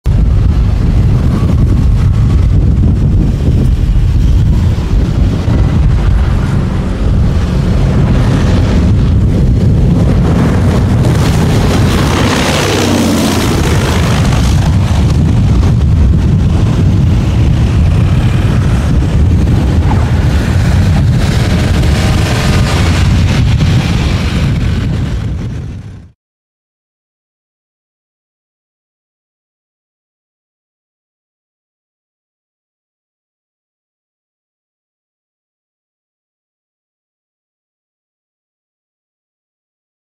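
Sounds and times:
wind buffeting microphone: 0:00.0 - 0:26.2
propeller plane passing overhead: 0:00.1 - 0:26.0.

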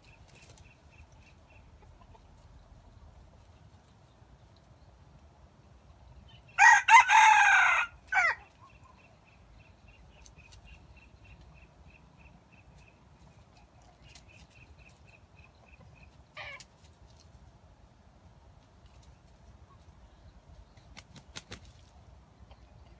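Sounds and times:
rooster crowing: 0:06.6 - 0:08.4.

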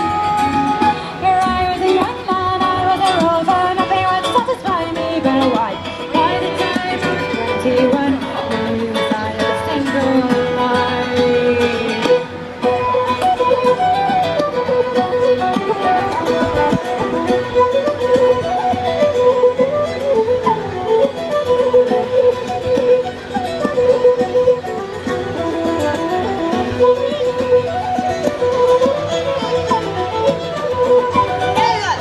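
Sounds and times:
fiddle melody: 0:00.0 - 0:32.0
strummed guitar: 0:00.0 - 0:32.0.

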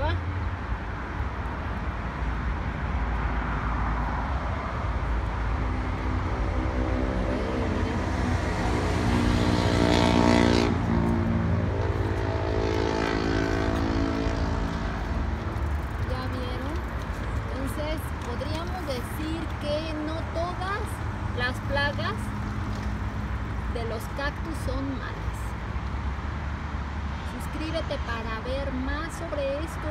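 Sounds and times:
vehicle engine hum: 0:00.0 - 0:29.9.

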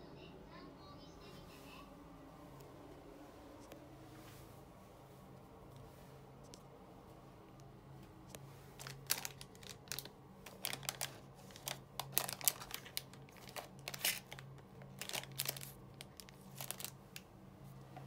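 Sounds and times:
plastic wrappers crinkling: 0:08.7 - 0:17.2.

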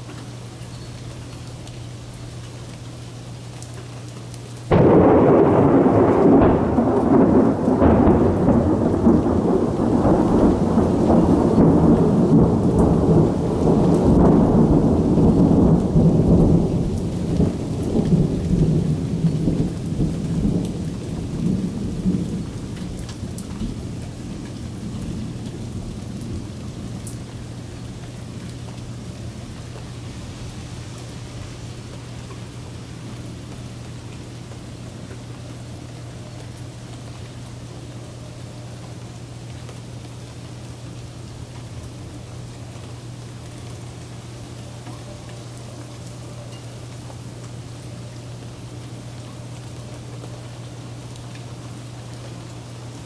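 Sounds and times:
steady rain: 0:00.0 - 0:53.0
thunderclap rumbling: 0:04.7 - 0:27.5.

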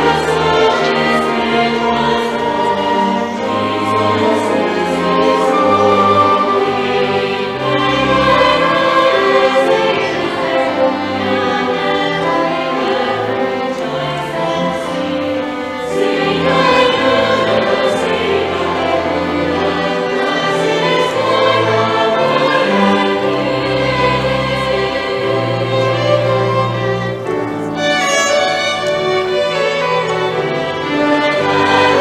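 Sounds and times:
choir singing: 0:00.0 - 0:32.0
violins: 0:00.0 - 0:32.0
double bass: 0:22.8 - 0:30.3.

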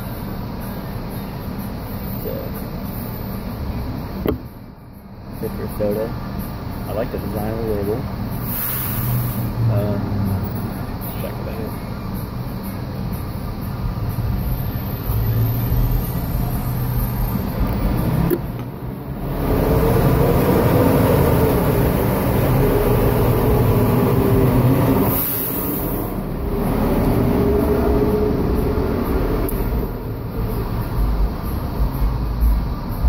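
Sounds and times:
vehicle engine rumbling: 0:00.0 - 0:33.0.

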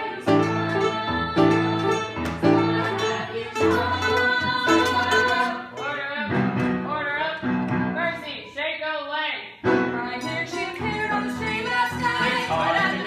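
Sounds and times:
mandolin playing: 0:00.0 - 0:07.2, 0:09.7 - 0:13.0
upright piano chords: 0:00.0 - 0:08.2.

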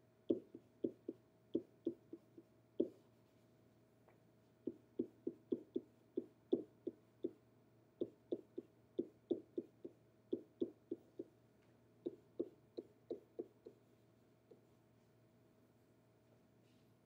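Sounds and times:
pen tapping on whiteboard: 0:00.3 - 0:03.0, 0:04.7 - 0:07.4, 0:08.0 - 0:11.3, 0:12.0 - 0:13.8.

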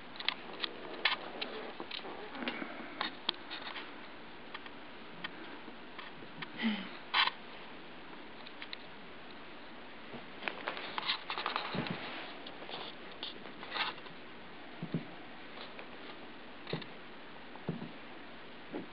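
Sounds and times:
puppy paws scratching on carpet: 0:10.2 - 0:14.1.

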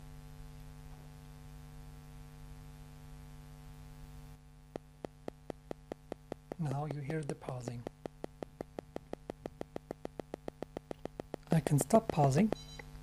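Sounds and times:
low electrical hum: 0:00.0 - 0:13.0
magnetic pulser clicking: 0:04.8 - 0:13.0.

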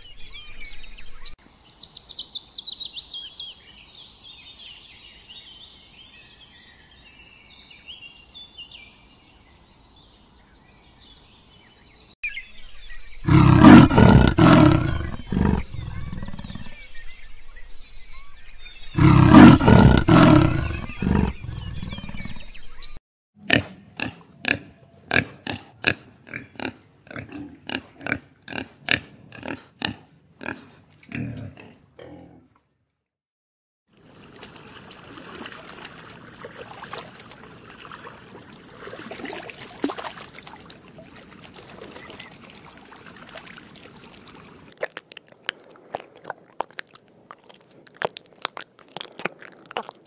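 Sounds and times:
pig grunting: 0:13.2 - 0:16.7, 0:19.0 - 0:22.5, 0:23.4 - 0:32.5
big cat calling: 0:13.2 - 0:16.8, 0:19.0 - 0:22.4.

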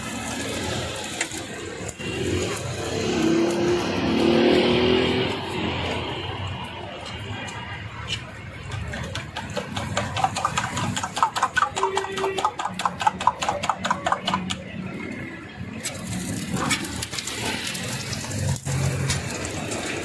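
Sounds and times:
oil sizzling on a griddle: 0:00.0 - 0:20.0
fork beating eggs in a steel bowl: 0:08.1 - 0:14.6.

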